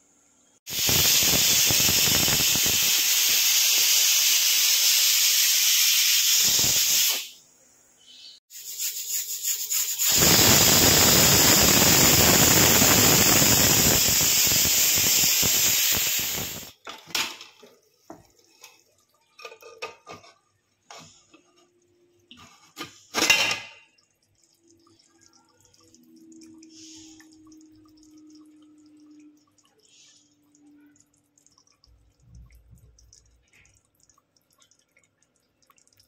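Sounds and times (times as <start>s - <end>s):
loud hissing rush: 0.7s - 7.3s, 9.7s - 16.7s.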